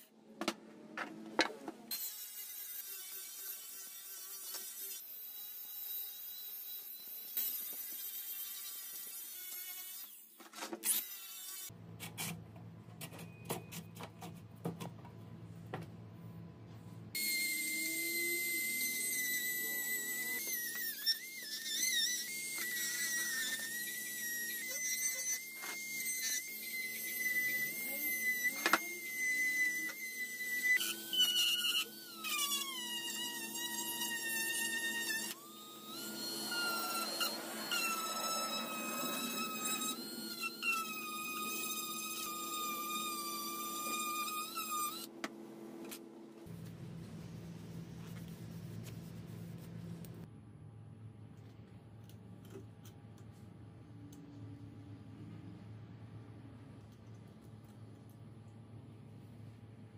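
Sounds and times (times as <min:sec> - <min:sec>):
power tool high whine: 0:17.2 - 0:45.1
low hum: 0:46.4 - 0:52.5.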